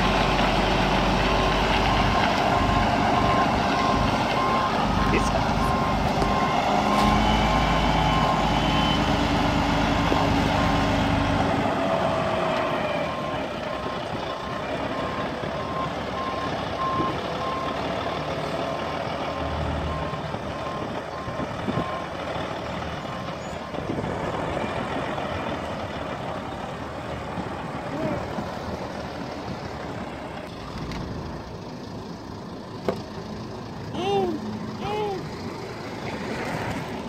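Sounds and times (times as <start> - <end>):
diesel truck engine running: 0.0 - 37.0
reversing alarm beeping: 1.2 - 11.1, 13.0 - 22.1.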